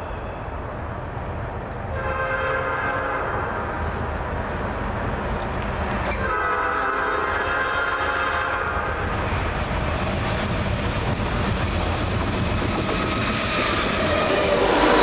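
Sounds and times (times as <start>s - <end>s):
low train rumble: 0.0s - 15.0s
locomotive air horn: 1.9s - 3.6s, 6.2s - 9.0s.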